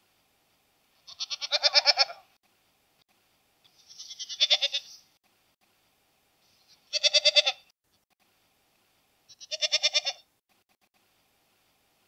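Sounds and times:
goat bleating: 1.0 - 2.3, 3.8 - 5.0, 6.8 - 7.7, 9.3 - 10.2.

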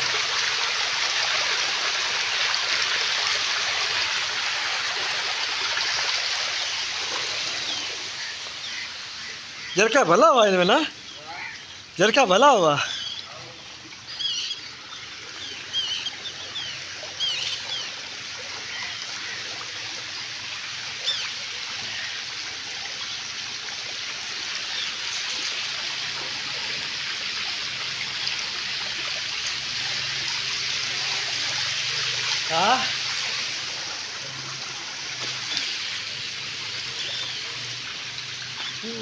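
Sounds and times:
shallow water trickling: 0.0 - 39.0
bird chirps: 12.8 - 13.3, 14.1 - 17.9.

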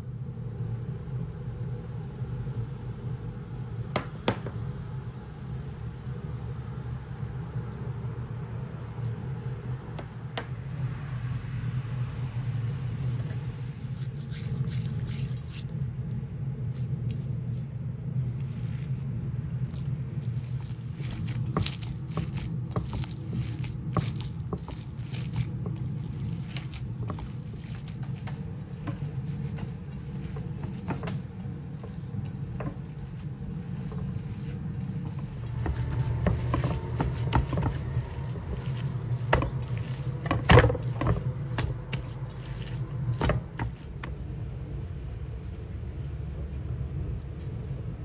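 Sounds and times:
low hum: 0.0 - 48.0
hands squishing minced meat: 14.0 - 44.8.

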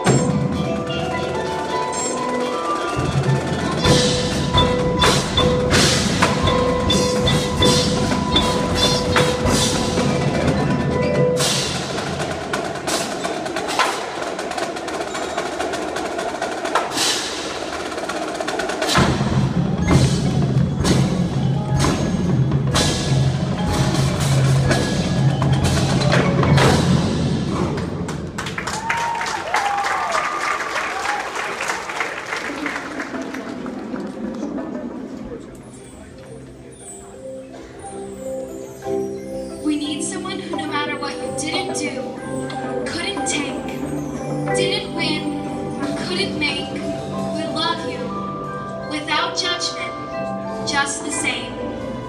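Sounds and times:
mallet keyboards: 0.0 - 28.7, 32.9 - 52.0
marching drums: 0.0 - 30.0.

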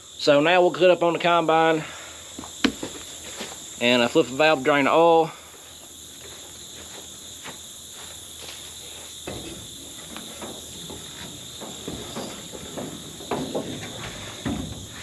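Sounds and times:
insects chirring: 0.0 - 15.0
footsteps on metal steps: 5.8 - 15.0.

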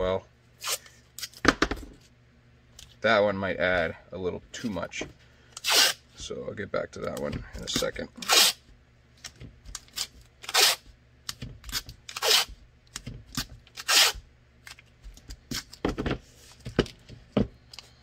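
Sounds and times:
tape tearing off roll: 5.6 - 6.0, 8.2 - 8.6, 9.7 - 10.9, 11.6 - 12.6, 13.3 - 14.2.

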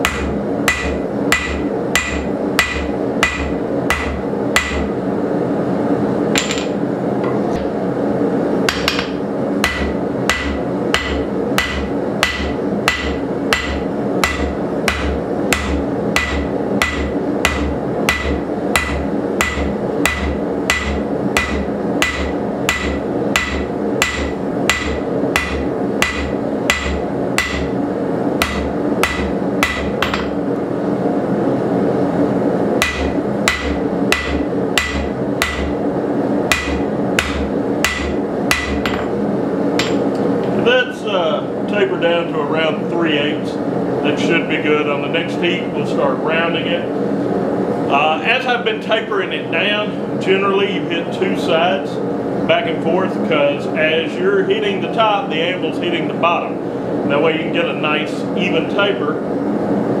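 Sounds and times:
hammer ringing on anvil: 8.7 - 27.7.

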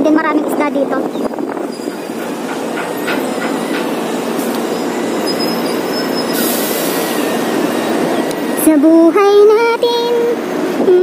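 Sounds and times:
wind buffeting microphone: 0.1 - 5.9.

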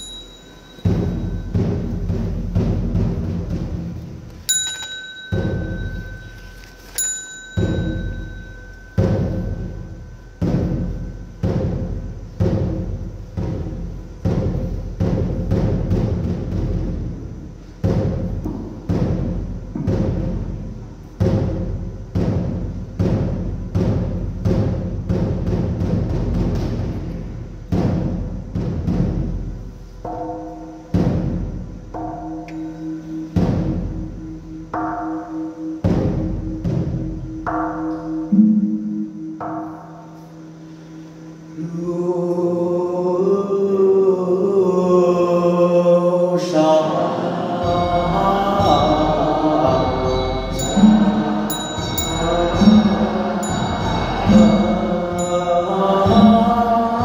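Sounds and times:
small high-pitched bell: 0.0 - 1.6, 4.5 - 10.5, 47.8 - 56.4
small gong ringing: 0.0 - 2.0, 4.5 - 12.1, 47.6 - 56.8
deep ringing percussion strokes: 0.0 - 3.9, 4.5 - 42.2, 47.1 - 57.0
temple drum beating: 0.0 - 40.1, 47.2 - 57.0.

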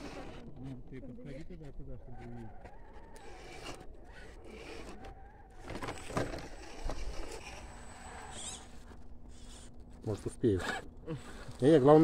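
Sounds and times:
small electric motor whining: 0.0 - 0.8, 1.4 - 9.9.

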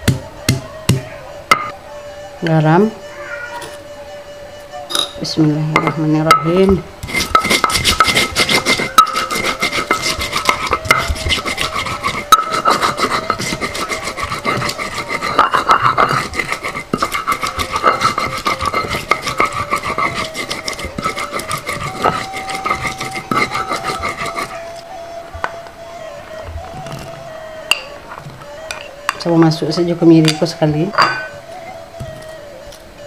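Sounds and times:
stone grinding on stone: 7.0 - 24.6.

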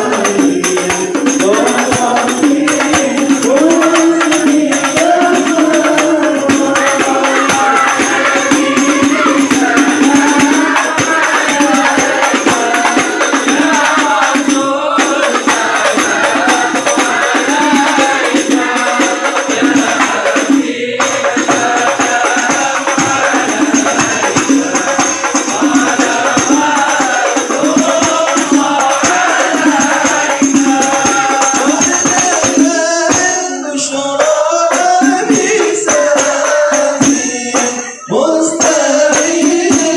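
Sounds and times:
frame drums with jingles: 0.0 - 39.9
group singing in unison: 0.0 - 39.9.

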